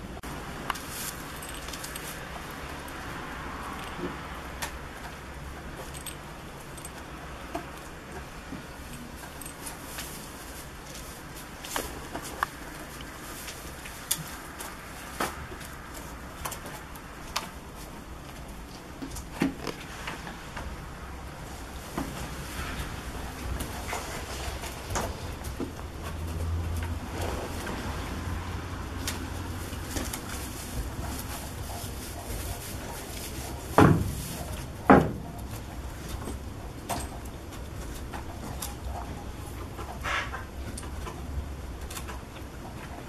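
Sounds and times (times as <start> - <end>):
loud wooden knocks: 34.9 - 35.3.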